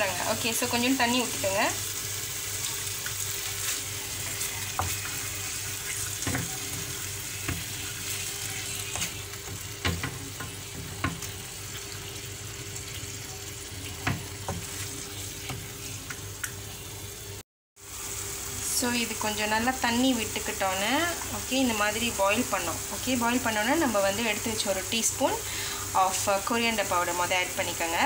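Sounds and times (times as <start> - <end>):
chicken sizzling in a frying pan: 0.0 - 28.0
spatula knocking against pan: 9.4 - 11.3.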